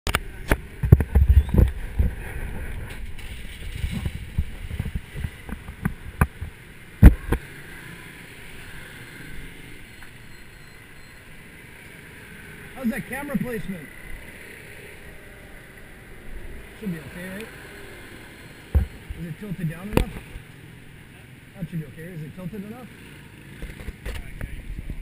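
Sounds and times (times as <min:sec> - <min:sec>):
steady background noise: 0:00.1 - 0:25.0.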